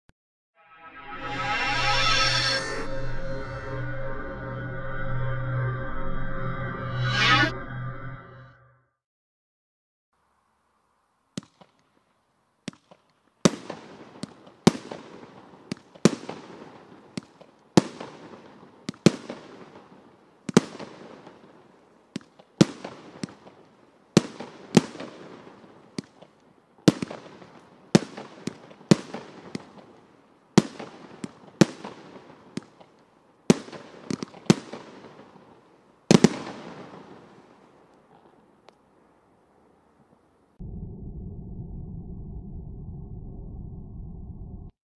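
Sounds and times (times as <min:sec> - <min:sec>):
faint firework pops: 0:11.4 - 0:12.0, 0:12.6 - 0:19.8, 0:22.1 - 0:30.0, 0:30.6 - 0:35.4
firework bangs: 0:12.6 - 0:26.3, 0:26.9 - 0:37.8.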